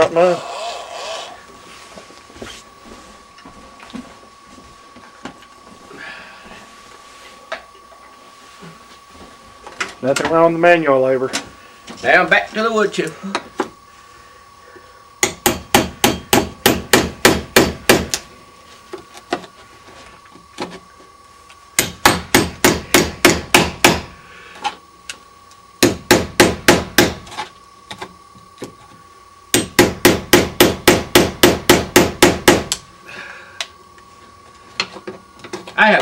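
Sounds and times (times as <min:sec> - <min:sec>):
hammer striking a chisel: 0:15.2 - 0:18.2, 0:21.8 - 0:24.1, 0:25.8 - 0:27.2, 0:29.5 - 0:32.8.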